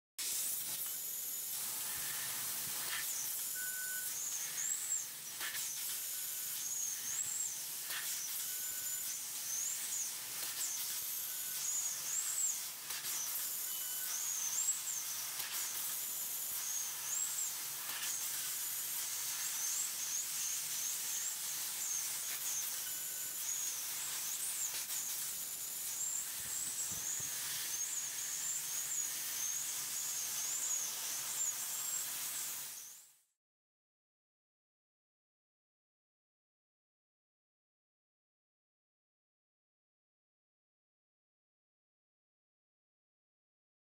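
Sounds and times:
high hiss of gas jet: 0:00.2 - 0:33.2
wavering high whistle: 0:02.9 - 0:18.1, 0:19.4 - 0:25.0.

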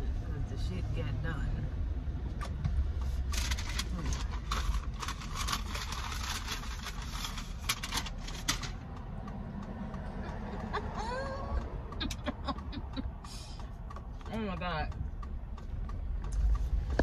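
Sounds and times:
car cabin rumble: 0:00.0 - 0:17.0
paper bag rustling: 0:03.2 - 0:08.6.

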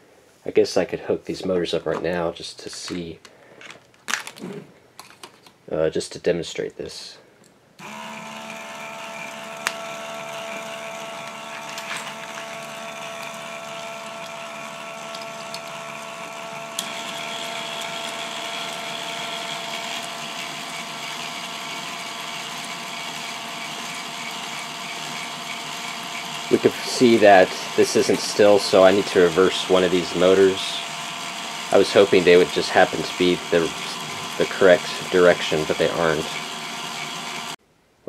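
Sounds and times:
electric motor gear whine: 0:07.8 - 0:37.6
higher motor whine: 0:07.8 - 0:37.6.

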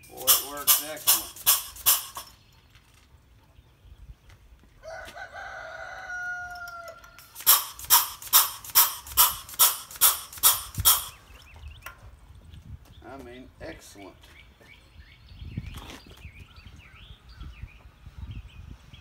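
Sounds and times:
grease gun pumping strokes: 0:00.0 - 0:02.3, 0:07.2 - 0:11.2.

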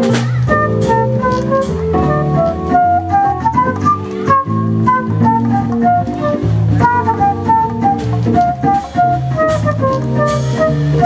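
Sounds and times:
drums and cymbals: 0:00.0 - 0:02.2, 0:05.0 - 0:11.0
bass line: 0:00.0 - 0:11.0
electronic organ keyboard melody: 0:00.0 - 0:11.0.

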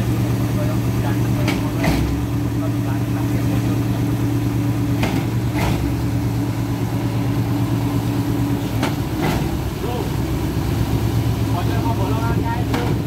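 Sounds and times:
diesel engine running steadily: 0:00.0 - 0:13.0.

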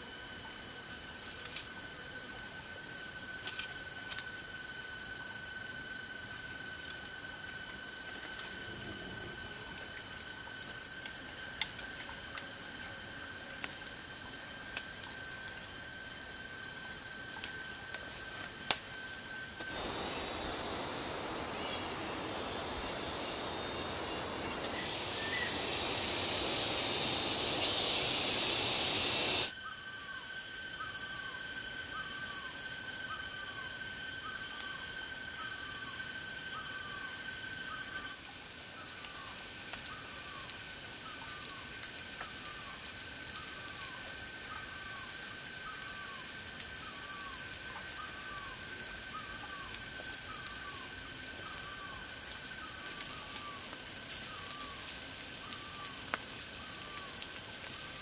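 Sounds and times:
high insect tones: 0:00.0 - 0:58.0
loud steady hiss: 0:00.0 - 0:58.0
campfire crackling: 0:02.9 - 0:29.5, 0:46.2 - 0:58.0.

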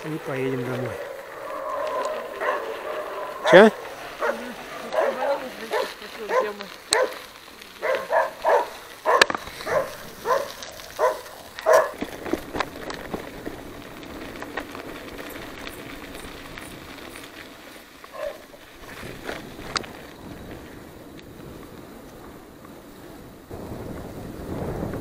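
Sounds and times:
dogs barking: 0:00.9 - 0:07.2, 0:07.8 - 0:12.0, 0:18.1 - 0:18.4.

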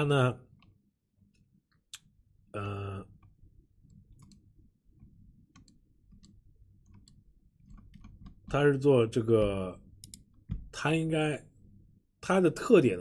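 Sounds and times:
person vocal sound: 0:02.6 - 0:03.1
computer mouse clicks: 0:03.2 - 0:08.6, 0:10.0 - 0:10.6.

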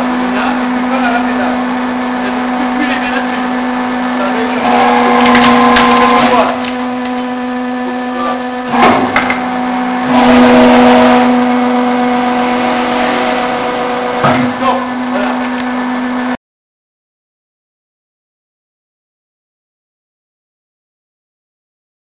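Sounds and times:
hydraulic power unit whining hum: 0:00.0 - 0:16.4
wood splitting: 0:04.7 - 0:07.2.

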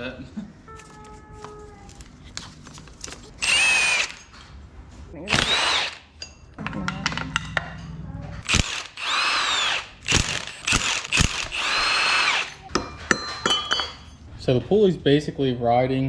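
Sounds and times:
power drill spinning: 0:03.4 - 0:04.3, 0:05.3 - 0:06.1, 0:08.4 - 0:12.7.

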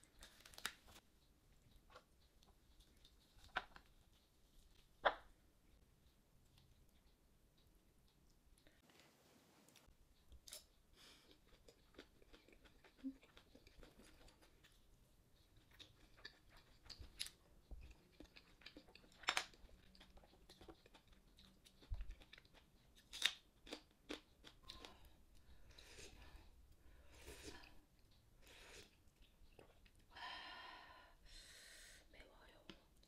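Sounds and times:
chewing: 0:00.1 - 0:04.9, 0:09.8 - 0:30.1.

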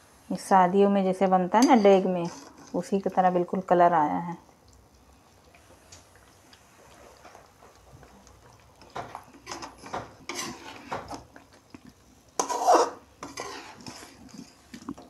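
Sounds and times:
metal ladle scraping a metal pot: 0:01.6 - 0:02.9, 0:09.4 - 0:11.2, 0:12.4 - 0:14.6.

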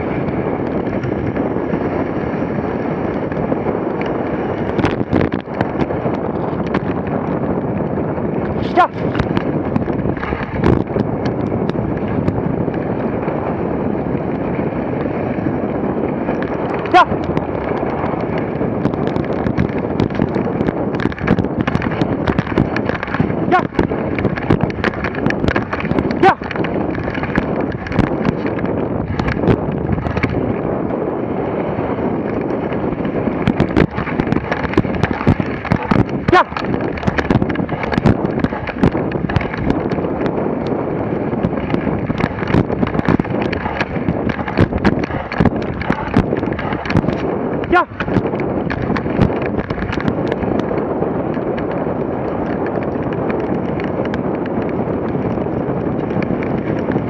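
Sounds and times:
wind on microphone: 0:00.0 - 0:57.0
small ticks and scrapes: 0:04.0 - 0:07.1, 0:08.4 - 0:13.1, 0:17.2 - 0:30.4, 0:33.4 - 0:50.7
sled runners hissing over snow: 0:19.7 - 0:57.0.

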